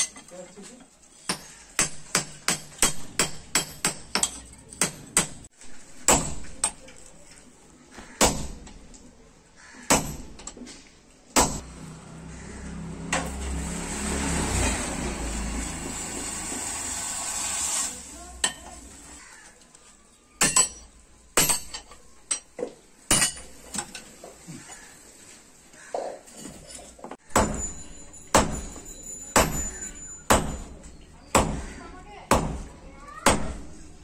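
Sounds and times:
hammer striking steel on anvil: 1.2 - 5.5, 27.3 - 31.7.

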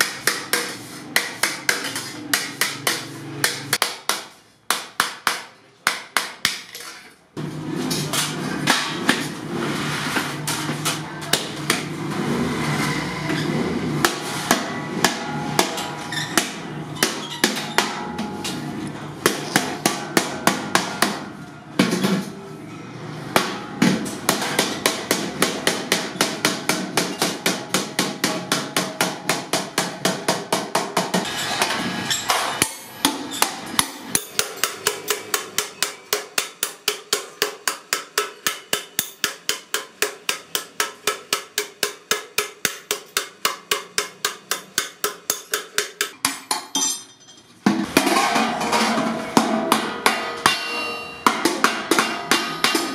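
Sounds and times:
hammer striking metal on anvil: 14.0 - 22.2, 23.3 - 52.9.

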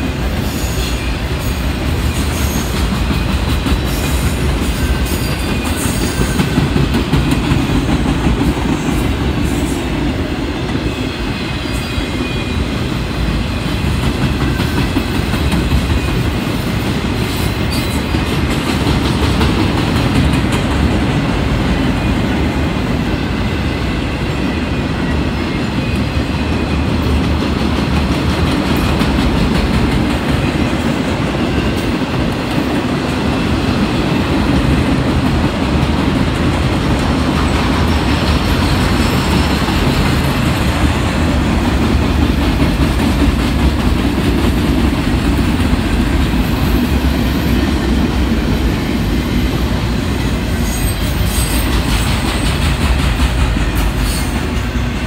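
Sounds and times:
freight train wheels rumbling on rails: 0.0 - 55.0.

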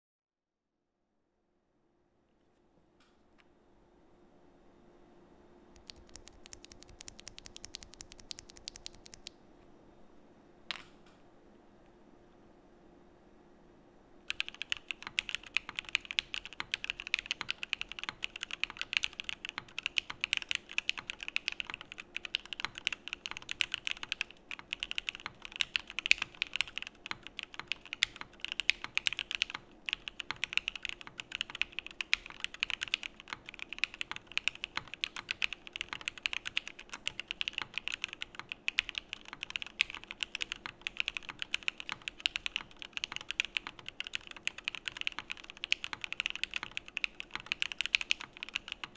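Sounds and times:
mechanical keyboard typing: 5.8 - 9.3, 14.3 - 48.9.

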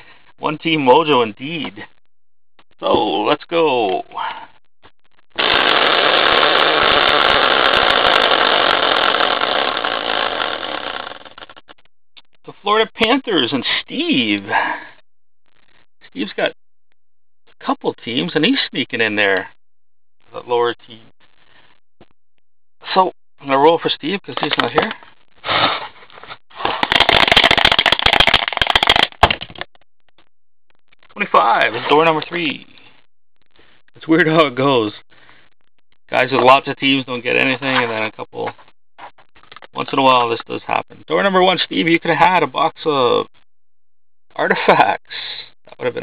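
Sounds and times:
prize wheel rattling clatter: 5.4 - 11.7, 26.6 - 29.4
plastic die rattling in cup: 26.7 - 29.4.

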